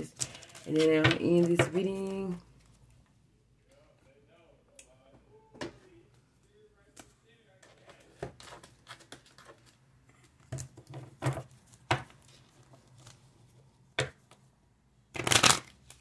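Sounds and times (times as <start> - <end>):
cards rustling: 0.0 - 3.0, 7.7 - 13.7.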